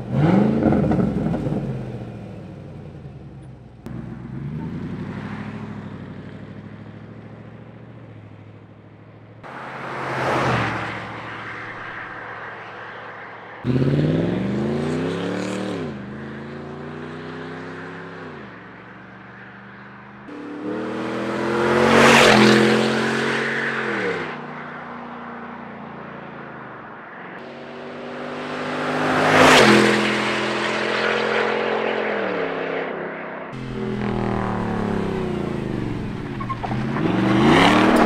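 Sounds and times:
loud truck exhaust passing: 20.3s - 24.2s, 33.6s - 38.0s.

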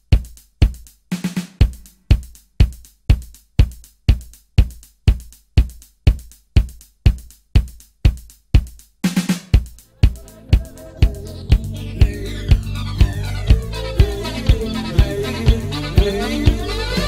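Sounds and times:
kick drum beat: 0.0s - 17.0s
snare drum fill: 1.1s - 2.0s, 7.1s - 17.0s
full band playing: 10.0s - 17.0s.

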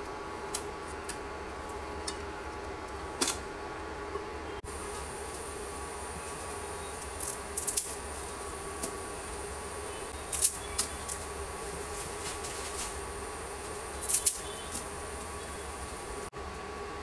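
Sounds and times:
faint hum: 0.0s - 17.0s
water boiling in a frying pan: 4.6s - 17.0s.

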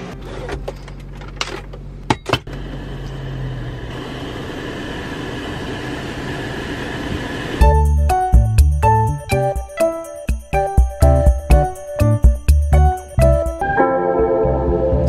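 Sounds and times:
car running hum: 0.0s - 8.8s.

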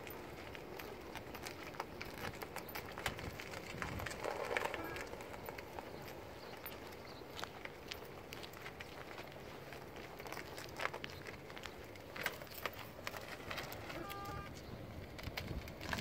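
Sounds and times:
footsteps on pavement: 0.0s - 16.0s.

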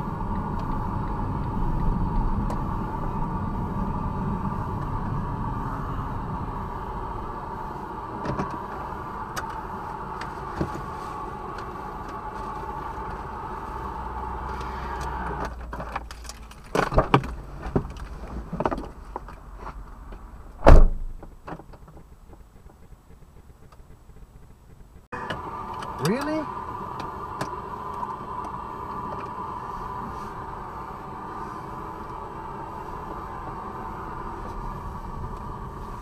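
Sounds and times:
car interior running noise: 0.0s - 36.0s
car door shutting: 8.2s - 9.6s, 20.6s - 21.7s.

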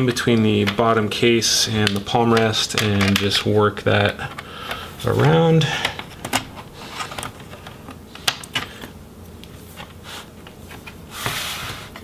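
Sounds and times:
rustling scrape: 6.7s - 7.3s, 9.6s - 12.0s.

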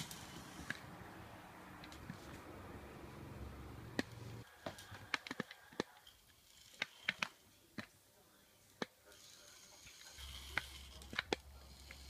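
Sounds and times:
toy car clicks and taps: 4.0s - 7.9s, 8.8s - 12.0s.

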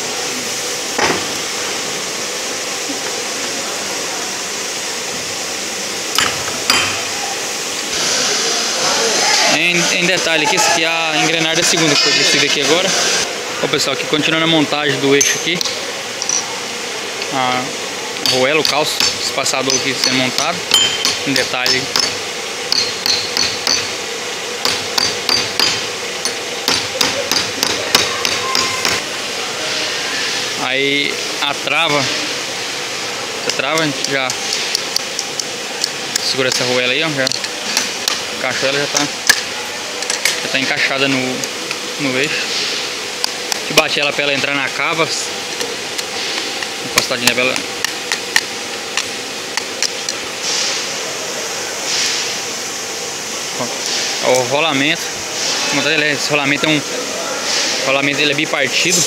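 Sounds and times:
steady hiss: 0.0s - 59.0s
hammer tapping on metal: 18.2s - 24.0s, 24.6s - 25.9s, 26.6s - 29.0s.

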